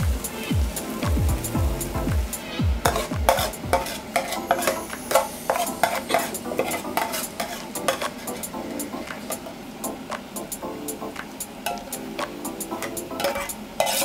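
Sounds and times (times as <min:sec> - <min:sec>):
light sizzle: 0:00.0 - 0:14.0
metal spoon clinking in frying pan: 0:02.9 - 0:08.1, 0:11.7 - 0:11.9, 0:12.8 - 0:14.0.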